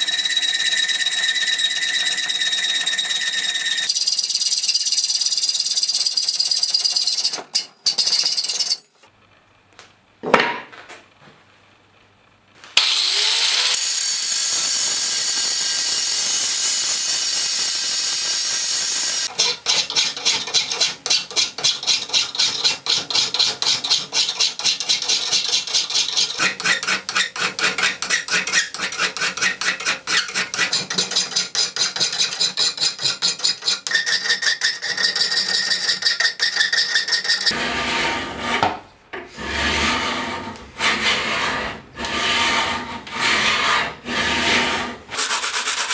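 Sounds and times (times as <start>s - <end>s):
power tool running: 12.8s - 19.3s
hand saw strokes on metal: 13.2s - 45.9s
metal file rasping: 13.8s - 38.7s, 39.3s - 45.9s.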